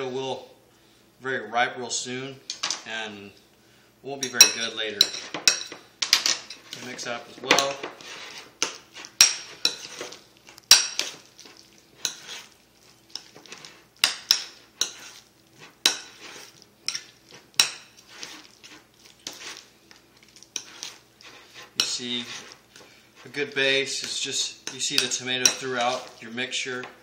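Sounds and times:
metal spoon scraping ceramic bowl: 6.4 - 11.3, 12.0 - 19.6, 20.5 - 22.6.

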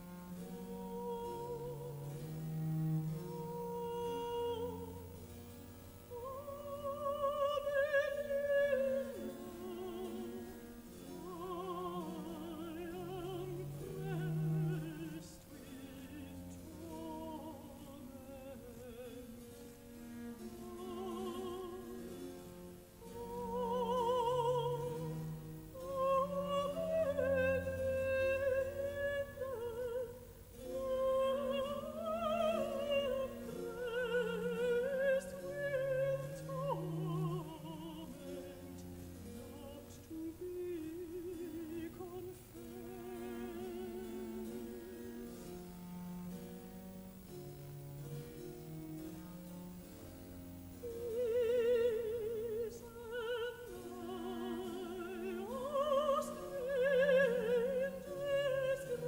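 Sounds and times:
classical instrumental accompaniment: 0.0 - 59.0
operatic singing: 6.1 - 19.6, 20.3 - 45.4, 50.8 - 59.0.

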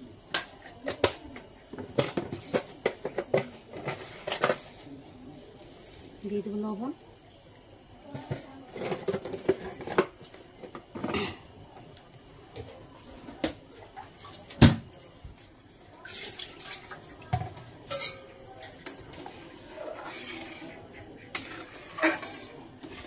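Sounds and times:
spoon stirring liquid in pot: 16.0 - 23.0
metal utensils clinking: 17.8 - 20.4.

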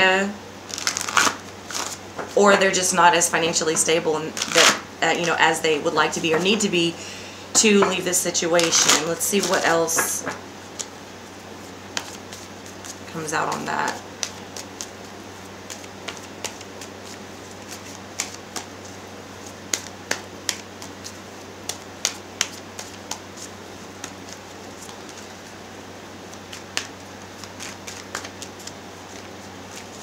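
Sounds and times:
steady low hum: 0.0 - 30.0
cards being shuffled: 0.7 - 2.4, 4.3 - 5.4, 8.5 - 11.0, 11.9 - 25.6, 26.2 - 30.0.

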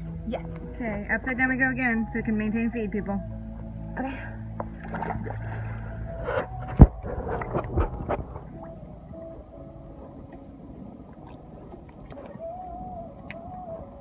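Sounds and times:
faint wavering tones: 0.0 - 14.0
muffled underwater gurgling: 0.0 - 14.0
water splashing: 4.5 - 14.0.

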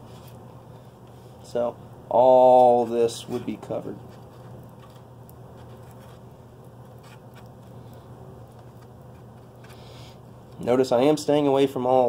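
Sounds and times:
steady low hum: 0.0 - 12.0
small brush dabbing scratchily: 2.4 - 10.8.

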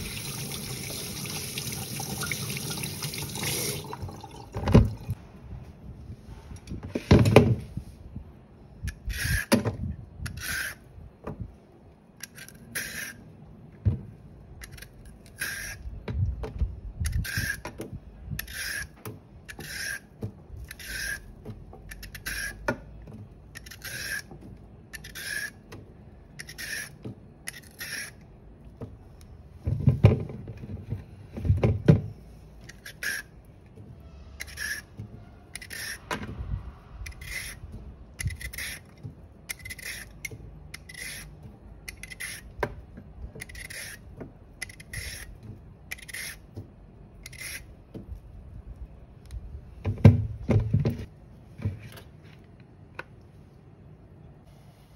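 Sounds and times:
peeler scraping carrot: 8.8 - 9.6, 10.2 - 10.9, 12.2 - 13.3, 14.6 - 16.0, 17.0 - 22.7, 23.5 - 28.2, 32.6 - 33.4, 34.4 - 36.1, 37.0 - 42.6, 43.4 - 46.5, 47.2 - 47.8.

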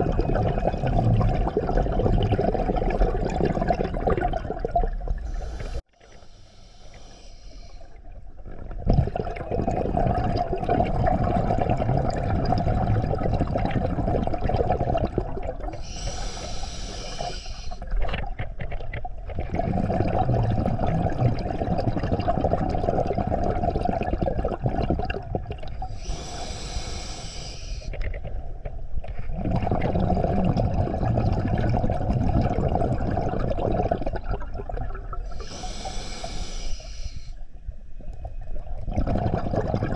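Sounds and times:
exhaled bubbles rushing: 0.0 - 5.8, 8.2 - 15.8, 17.8 - 26.0, 27.9 - 35.4, 38.2 - 39.9
regulator inhalation hiss: 5.3 - 7.9, 15.8 - 17.8, 25.9 - 27.9, 35.3 - 37.4.

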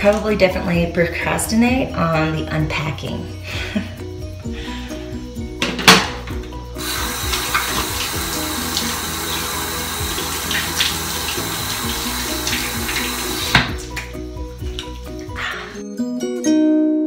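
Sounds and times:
sink tap running: 5.9 - 14.1
water splashing face washing: 6.8 - 15.5.

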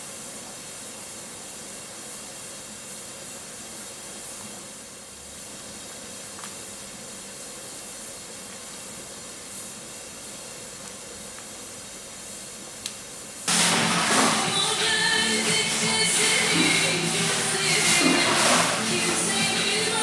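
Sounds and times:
pot of stew boiling: 0.0 - 20.0
music: 13.5 - 20.0.

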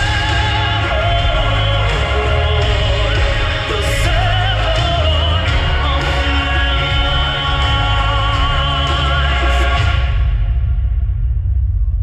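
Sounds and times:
wavering singing voice: 0.0 - 10.3
soundtrack music with heavy bass: 0.0 - 12.0.

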